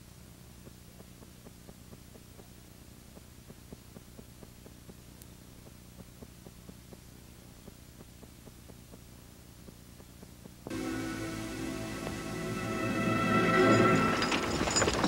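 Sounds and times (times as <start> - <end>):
faint rapid clicks: 0.0 - 10.7
low electrical hum with hiss: 0.0 - 15.0.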